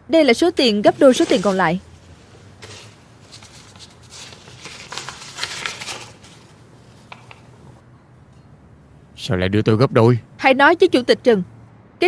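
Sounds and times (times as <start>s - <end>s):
paper rustling: 0.6s - 7.8s.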